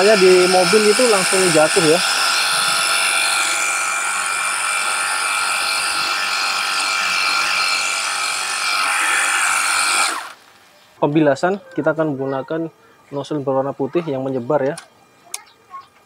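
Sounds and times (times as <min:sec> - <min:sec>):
pressure washer motor whining: 0:00.0 - 0:10.4.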